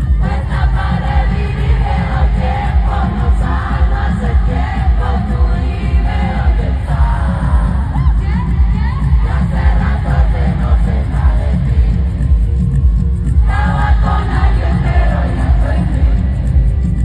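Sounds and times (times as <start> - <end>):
person singing: 0.0 - 12.7
amplified concert music: 0.0 - 17.0
crowd noise: 0.0 - 17.0.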